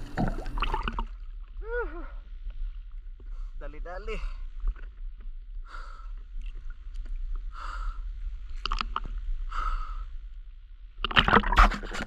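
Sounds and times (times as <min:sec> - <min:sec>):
water splashing: 0:00.0 - 0:02.1, 0:11.0 - 0:12.0
low rumble of water: 0:00.0 - 0:12.0.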